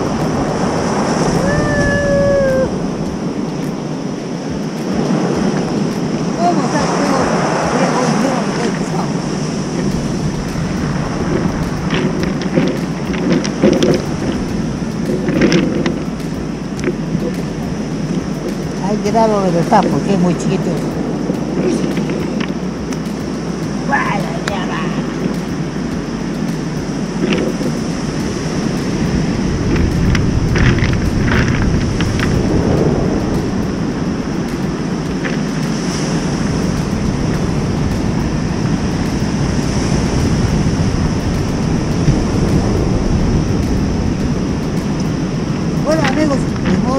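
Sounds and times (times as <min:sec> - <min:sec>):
surf on pebble beach: 0:00.0 - 0:46.9
wind on microphone: 0:00.0 - 0:46.9
pebbles knocking together: 0:11.3 - 0:20.0, 0:27.2 - 0:27.8.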